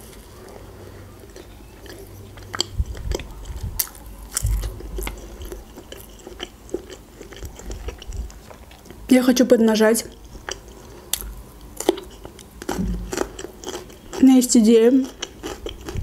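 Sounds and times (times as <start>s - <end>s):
chewing bread: 0.0s - 9.1s, 10.0s - 16.0s
dull low thumps: 4.4s - 5.5s, 12.7s - 13.2s.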